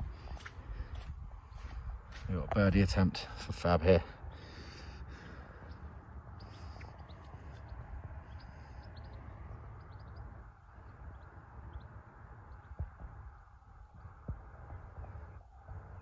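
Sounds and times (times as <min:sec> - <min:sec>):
wind rumble on microphone: 0:00.0 - 0:16.0
faint bird chirps: 0:05.2 - 0:13.1.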